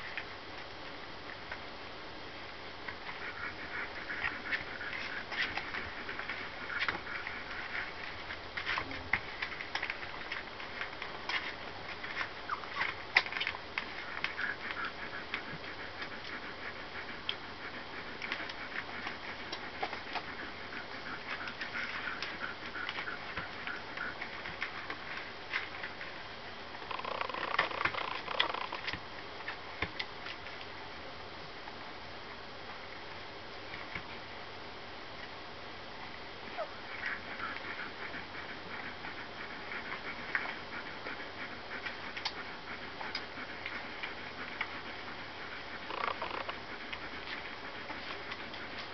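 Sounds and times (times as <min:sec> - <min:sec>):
puppies suckling: 0:00.0 - 0:31.0, 0:32.8 - 0:48.9
puppies squeaking: 0:12.4 - 0:13.0.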